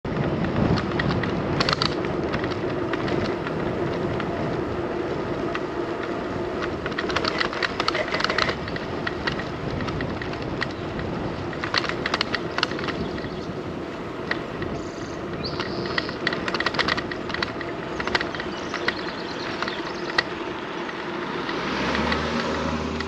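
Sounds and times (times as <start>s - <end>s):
bicycle rattling: 0.0s - 23.0s
bicycle tyres and wind rumble: 0.0s - 23.0s.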